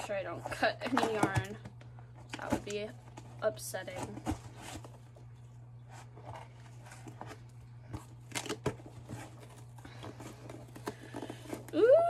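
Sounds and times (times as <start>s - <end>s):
cardboard rustling and tearing: 2.3s - 5.2s, 5.9s - 11.8s.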